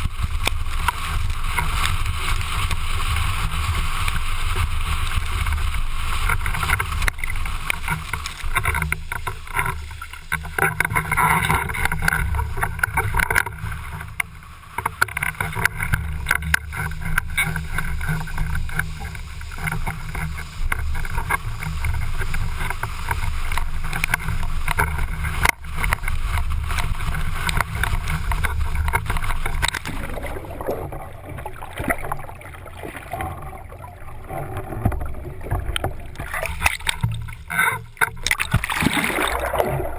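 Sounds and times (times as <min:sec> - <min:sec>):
crackling splashes: 0:00.0 - 0:39.9
water rushing and spraying: 0:00.0 - 0:39.9
low rumble: 0:38.1 - 0:39.9.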